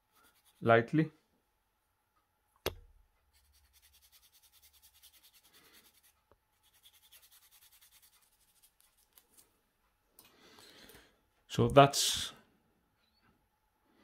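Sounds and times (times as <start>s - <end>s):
sanding stick rubbing on plastic: 0.2s - 0.6s, 3.4s - 9.2s.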